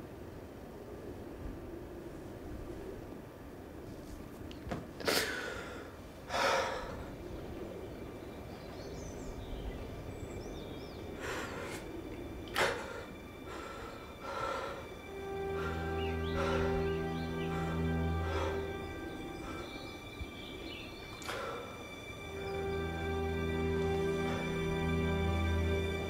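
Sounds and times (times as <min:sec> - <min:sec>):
man breathing in ragged gasps: 0:05.1 - 0:07.2, 0:11.2 - 0:11.9, 0:12.5 - 0:19.9
low music drone: 0:06.3 - 0:26.0.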